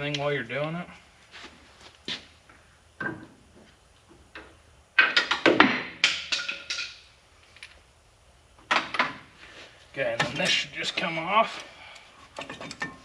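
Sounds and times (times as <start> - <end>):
metal clanks and clatter: 12.3 - 13.0.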